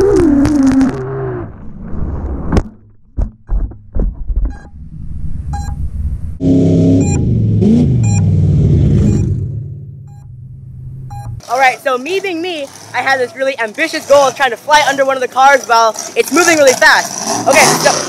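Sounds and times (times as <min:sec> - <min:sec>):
drone hitting and tumbling: 0:00.0 - 0:11.4
short high beeps: 0:05.5 - 0:05.8, 0:07.0 - 0:07.2, 0:08.0 - 0:08.3, 0:09.0 - 0:09.3, 0:11.1 - 0:11.4
truck engine revving: 0:06.4 - 0:11.5, 0:15.9 - 0:18.0.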